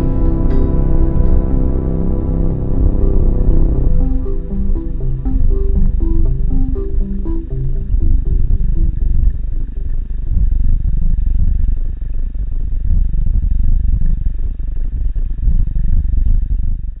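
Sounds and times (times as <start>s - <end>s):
muffled underwater rumble: 0.0s - 16.8s.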